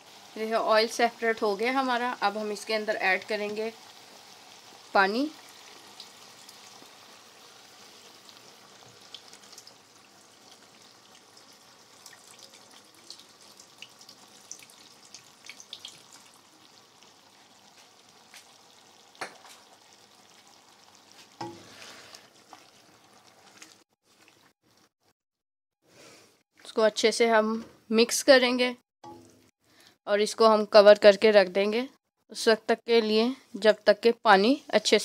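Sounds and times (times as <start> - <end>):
food sizzling in hot oil: 0.0 - 24.9, 29.0 - 29.5
water being poured: 4.0 - 24.9, 29.1 - 29.5.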